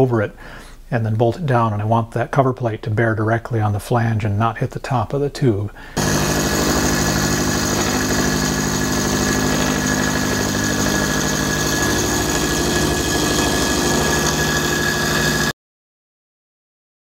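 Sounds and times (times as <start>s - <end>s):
milling machine cutting steel: 6.0s - 15.5s.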